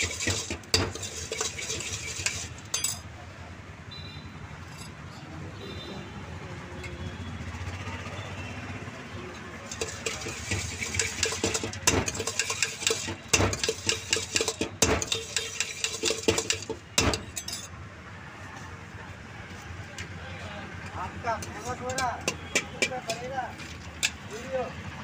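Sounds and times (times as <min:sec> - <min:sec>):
spoon clinking against steel bowl: 0:00.0 - 0:03.1, 0:09.7 - 0:17.7, 0:21.4 - 0:23.3.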